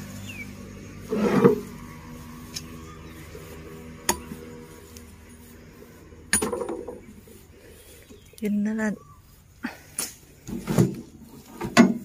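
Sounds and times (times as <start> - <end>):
rustling thump: 10.0 - 12.0.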